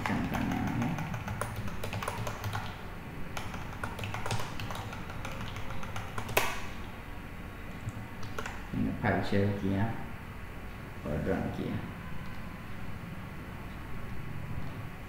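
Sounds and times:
keyboard keys clicking: 0:00.0 - 0:02.8, 0:03.4 - 0:06.6, 0:08.2 - 0:08.6.

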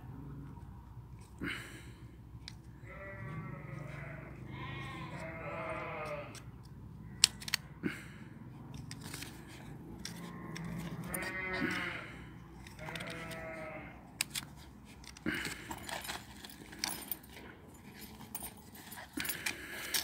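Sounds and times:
farm animal bleating: 0:02.8 - 0:07.2, 0:10.2 - 0:14.1
dog chain clinking: 0:15.5 - 0:20.0.

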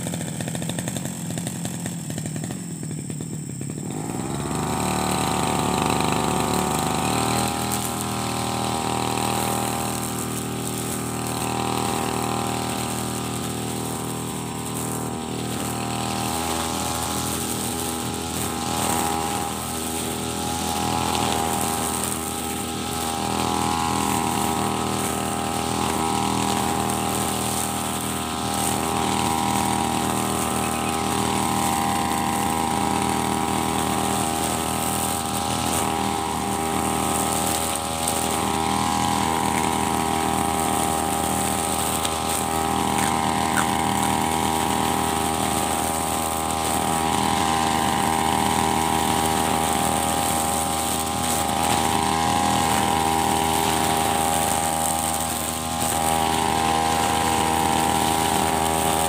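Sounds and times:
brush cutter engine running: 0:00.0 - 0:59.0
trimmer head cutting grass: 0:00.0 - 0:59.0.

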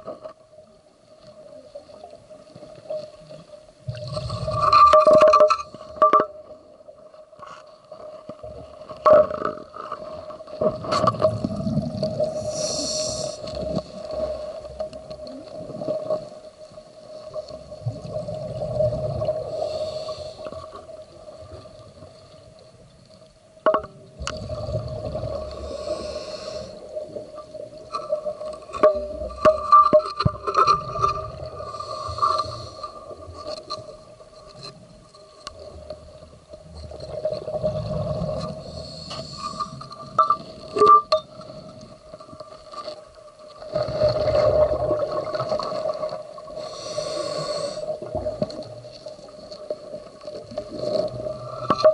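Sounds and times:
exhaled bubbles rushing: 0:03.9 - 0:04.9, 0:10.7 - 0:12.5, 0:24.2 - 0:25.8, 0:43.7 - 0:46.4
diver breathing through regulator: 0:12.3 - 0:14.6, 0:19.4 - 0:20.8, 0:25.5 - 0:26.9, 0:31.6 - 0:33.1, 0:38.5 - 0:40.0, 0:46.6 - 0:48.1.

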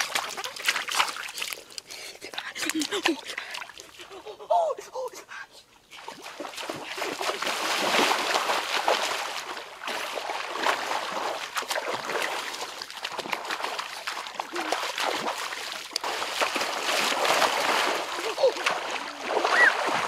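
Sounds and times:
water splashing: 0:00.0 - 0:04.4, 0:05.9 - 0:20.0.

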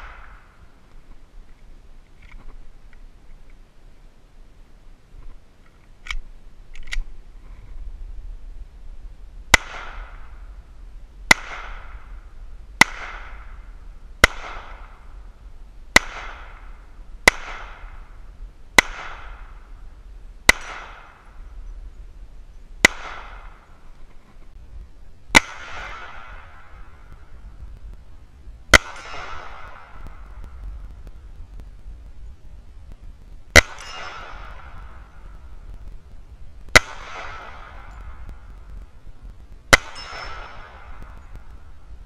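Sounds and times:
pistol shots with echo: 0:09.5 - 0:10.4, 0:11.3 - 0:12.2, 0:12.8 - 0:13.6, 0:14.2 - 0:15.1, 0:16.0 - 0:18.2, 0:18.8 - 0:19.7, 0:20.5 - 0:21.4, 0:22.8 - 0:23.8, 0:25.3 - 0:27.2, 0:28.7 - 0:30.6, 0:33.5 - 0:35.4, 0:36.7 - 0:38.5, 0:39.7 - 0:41.5.

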